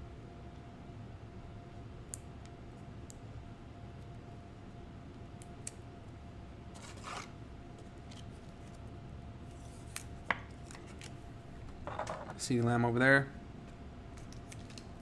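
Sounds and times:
cards rustling: 14.2s - 15.0s.

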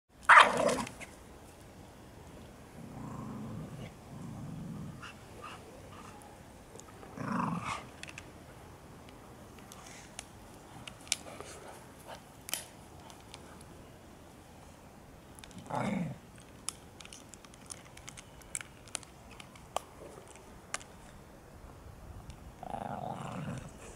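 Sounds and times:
dogs growling: 2.8s - 6.2s, 7.1s - 7.9s
small clicks: 16.3s - 21.2s.

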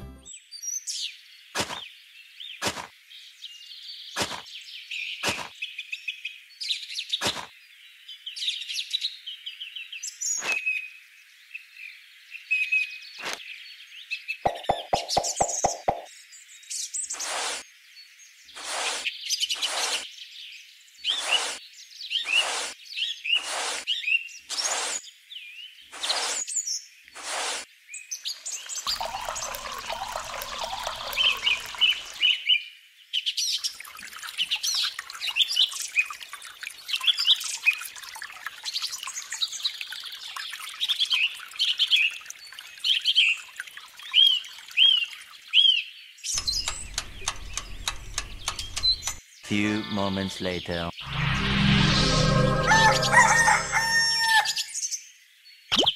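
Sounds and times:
water pouring into metal cup: 28.4s - 32.4s, 33.6s - 45.6s
birds chirping and singing: 46.3s - 51.1s.

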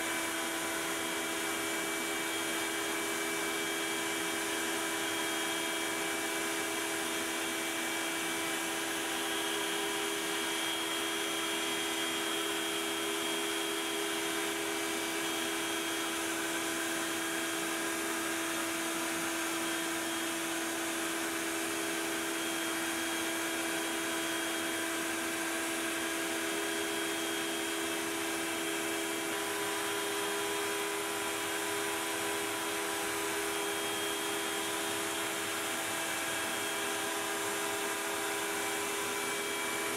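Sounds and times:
router cutting with whine: 0.0s - 39.9s
shop vacuum hiss: 0.0s - 39.9s.

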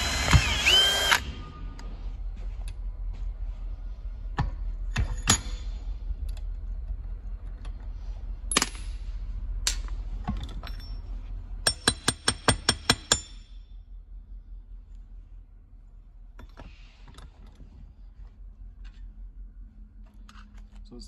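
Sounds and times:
metal tools clicking and clinking: 9.7s - 11.1s.

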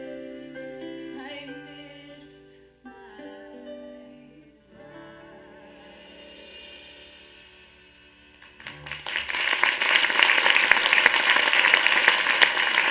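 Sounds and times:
audience applause: 8.3s - 12.9s.

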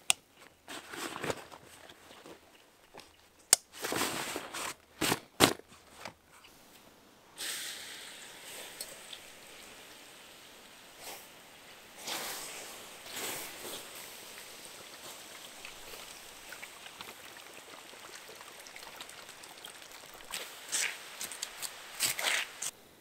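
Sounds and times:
straps and fabric rustling: 0.0s - 6.8s, 11.0s - 17.2s
water hissing on hot embers: 7.3s - 22.8s.

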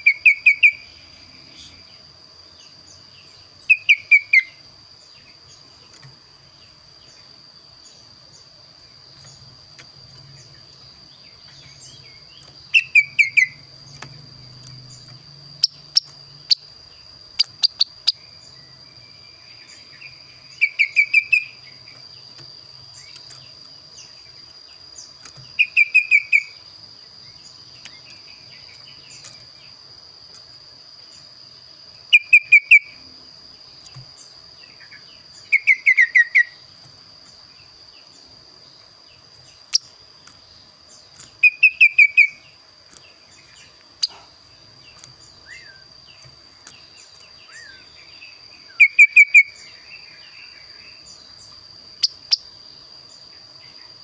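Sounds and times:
bird calling: 0.0s - 1.9s, 3.6s - 4.6s, 10.1s - 22.0s, 25.0s - 26.6s, 32.1s - 33.0s, 34.6s - 36.7s, 41.2s - 42.6s, 43.4s - 51.2s.

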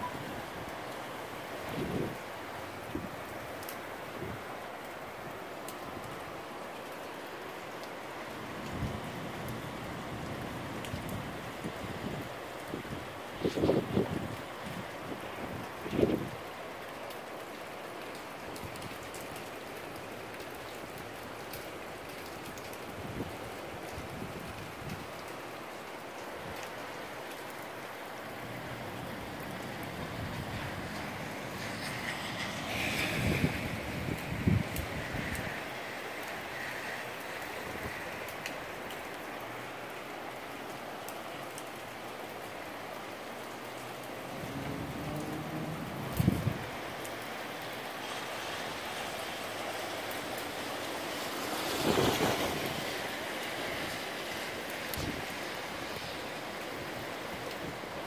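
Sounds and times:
steady rain hiss: 0.0s - 58.0s
raindrops ticking: 15.6s - 33.0s, 33.9s - 48.3s.

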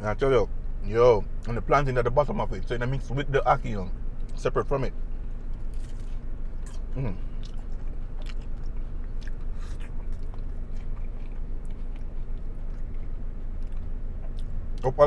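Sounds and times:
person chewing crunchy taco: 5.3s - 14.9s.

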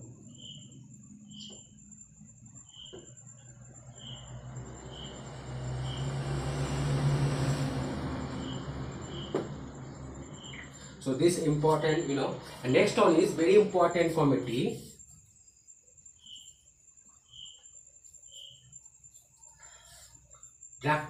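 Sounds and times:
rushing noise with low hum: 3.8s - 13.2s.

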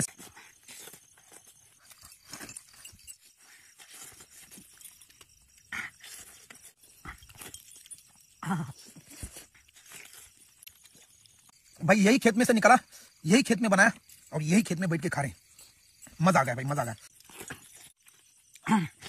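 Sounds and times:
man chewing and smacking: 0.0s - 11.7s, 17.1s - 18.7s.

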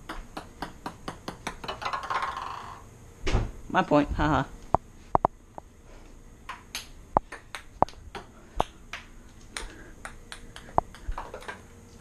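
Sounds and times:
ping-pong ball clicking off paddles: 0.0s - 2.8s, 9.6s - 11.6s.

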